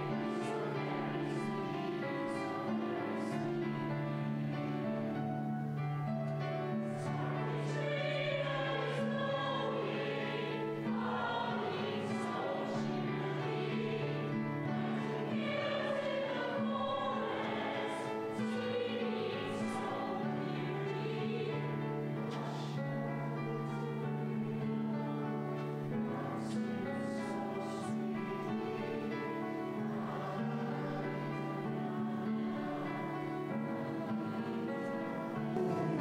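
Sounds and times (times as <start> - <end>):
low held accompaniment notes: 0.0 - 36.0
mixed choir singing: 0.0 - 36.0.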